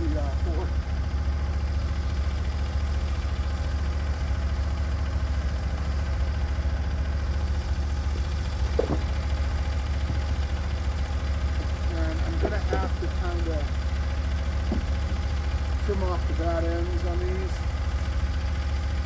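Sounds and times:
gas engine idling: 0.0 - 19.0
brief knock: 8.8 - 9.1, 14.7 - 14.9.

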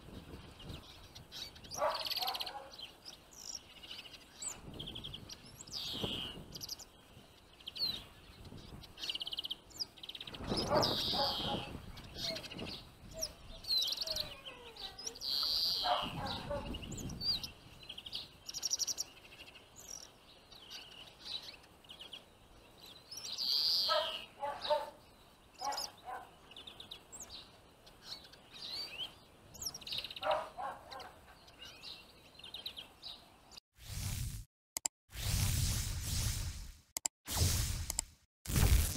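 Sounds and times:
finches twittering and chirping: 0.2 - 33.2.

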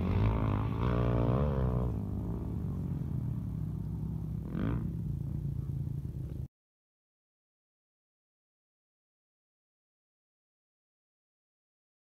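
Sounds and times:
off-road vehicle engine revving: 0.0 - 5.7.

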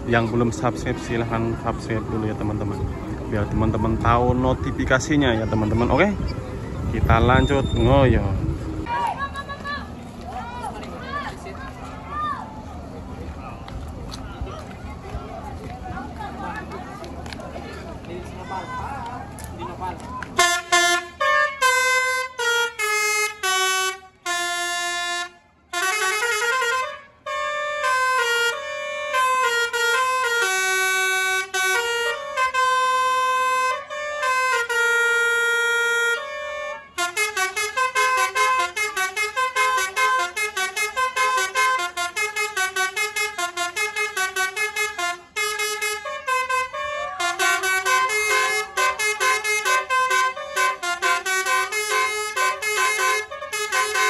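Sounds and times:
musical air horn playing tune: 20.4 - 54.0.

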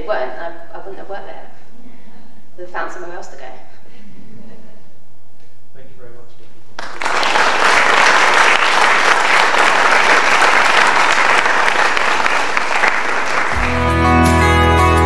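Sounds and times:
audience applauding: 6.8 - 14.3.

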